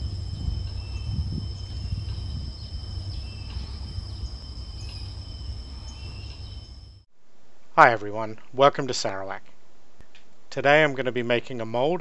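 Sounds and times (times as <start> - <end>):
insects trilling: 0.0 - 7.0
low rumble: 0.0 - 7.0.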